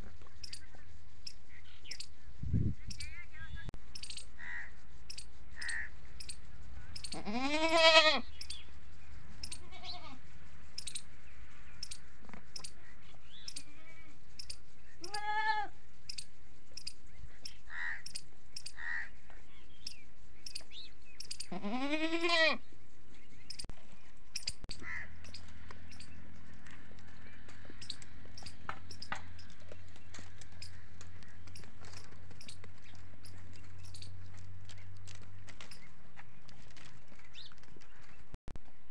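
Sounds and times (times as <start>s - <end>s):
goat bleating: 7.1s - 8.3s, 9.6s - 10.2s, 15.0s - 15.7s, 21.5s - 22.6s.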